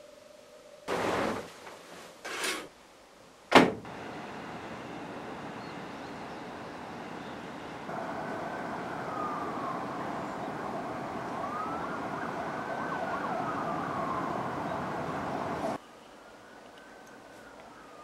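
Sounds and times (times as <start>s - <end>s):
city traffic noise: 3.8s - 15.8s
emergency vehicle siren: 3.9s - 15.8s.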